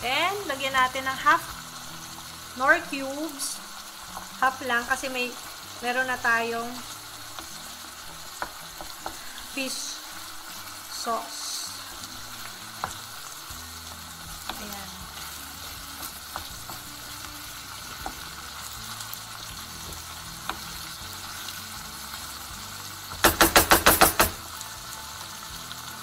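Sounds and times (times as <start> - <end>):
food sizzling in a frying pan: 0.0 - 26.0
sharp knocks: 23.2 - 24.4
wooden spoon clicking on pan: 23.2 - 24.4.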